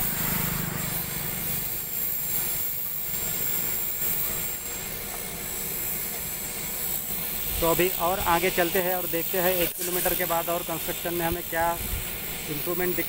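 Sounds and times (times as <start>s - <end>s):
engine and traffic rumble: 0.0s - 8.6s
wind on microphone: 11.8s - 12.2s.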